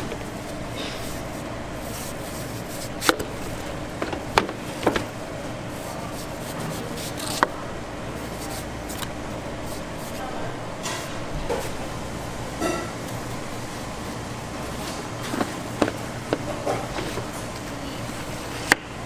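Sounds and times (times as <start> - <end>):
steady background hum: 0.0 - 19.0
knife slicing fruit: 5.9 - 7.6.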